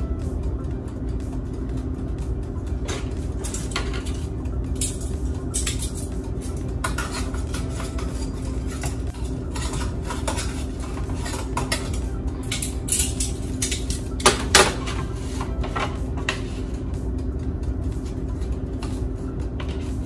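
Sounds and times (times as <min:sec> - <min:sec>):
steady low hum: 0:00.0 - 0:20.0
metal utensil scraping basket: 0:02.9 - 0:16.8.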